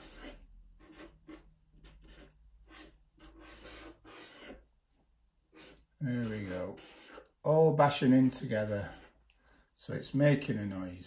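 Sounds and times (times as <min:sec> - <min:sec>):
marker scratching on paper: 0:00.0 - 0:04.7, 0:05.5 - 0:09.2.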